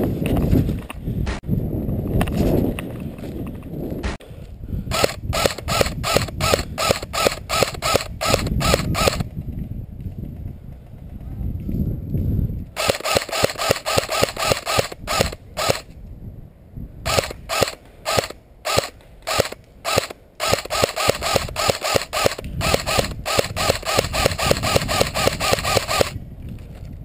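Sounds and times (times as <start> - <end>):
airsoft rifle shots: 4.9 - 9.3, 12.8 - 15.9, 17.1 - 26.2.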